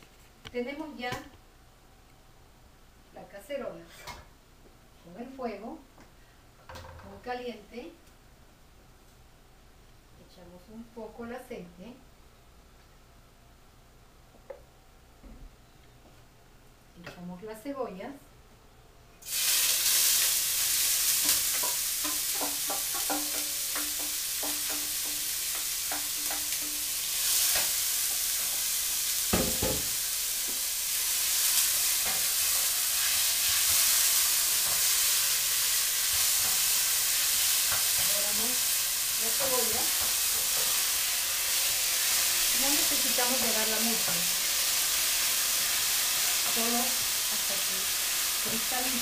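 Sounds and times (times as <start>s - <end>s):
onions sizzling in hot oil: 19.2s - 49.0s.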